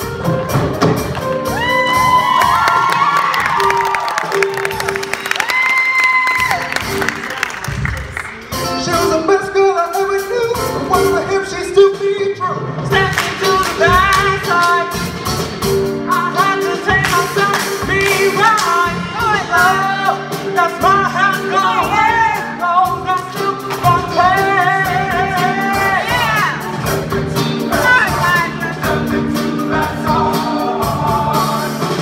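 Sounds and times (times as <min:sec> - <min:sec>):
drum kit beat: 0:00.0 - 0:32.0
choir singing: 0:25.7 - 0:32.0.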